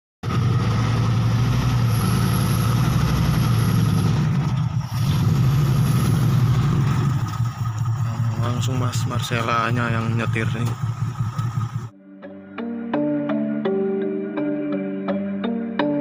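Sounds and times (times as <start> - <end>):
car engine running at low revs: 0.2 - 11.9.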